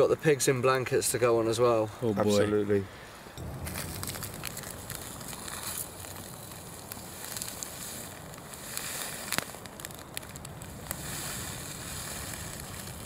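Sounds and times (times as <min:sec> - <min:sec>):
campfire crackling: 0:00.0 - 0:13.0
small pops from fire: 0:03.4 - 0:13.0.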